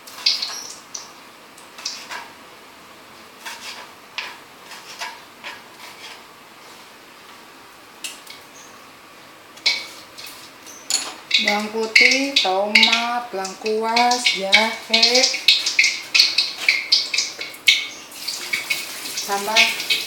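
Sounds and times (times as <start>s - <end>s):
faint steady hiss: 0.0s - 20.0s
utensils clinking on pans: 9.6s - 20.0s.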